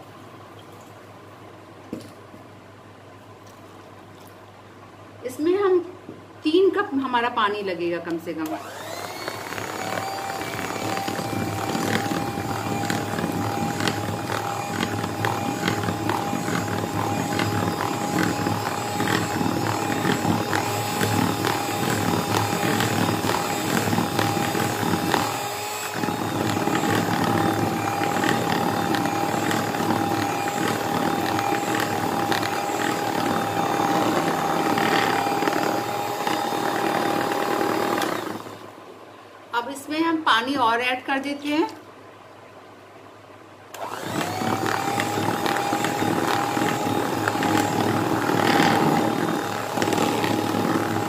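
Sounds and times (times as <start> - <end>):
electric hand mixer whine: 8.5 - 38.8, 43.8 - 51.0.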